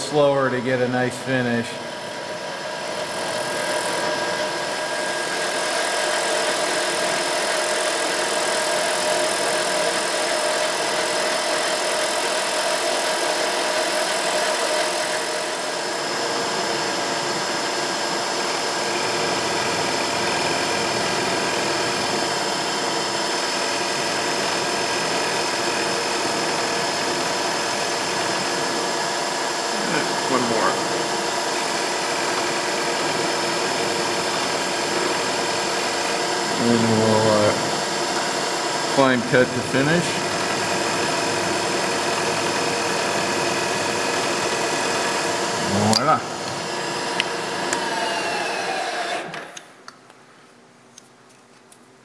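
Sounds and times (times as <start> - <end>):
milling machine cutting plastic: 18.4 - 49.6.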